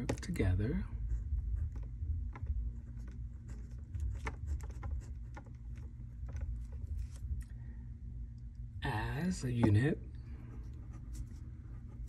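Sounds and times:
low steady hum: 0:00.0 - 0:12.0
pen scratching on paper: 0:01.0 - 0:05.9, 0:10.5 - 0:12.0.

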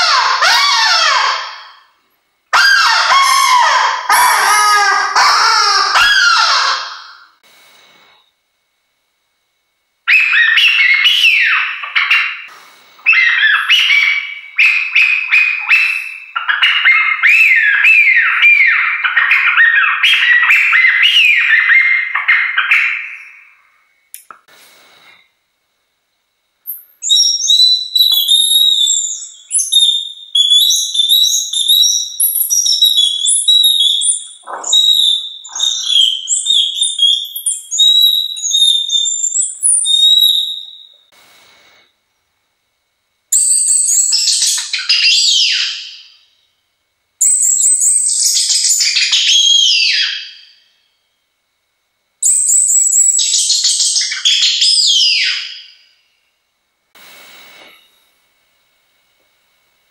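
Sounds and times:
bird-call whistles: 0:10.1 - 0:23.6, 0:26.7 - 0:41.0, 0:43.4 - 0:46.3, 0:47.2 - 0:50.9, 0:52.2 - 0:56.0.

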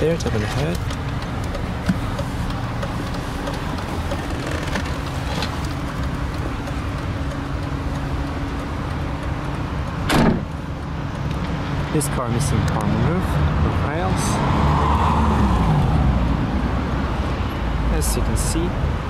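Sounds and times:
car engine idling: 0:00.0 - 0:11.4
loud thump: 0:10.1 - 0:10.5.

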